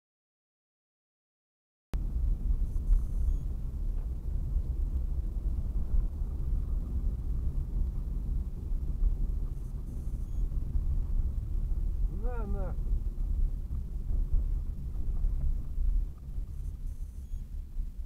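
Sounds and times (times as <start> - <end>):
car interior engine and tyre rumble: 2.0 - 18.0.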